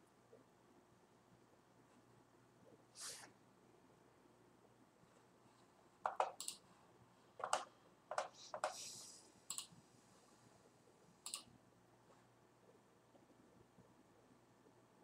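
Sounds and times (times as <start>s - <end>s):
keyboard clicks: 6.1s - 6.6s, 7.4s - 8.8s, 9.5s - 9.7s, 11.2s - 11.5s.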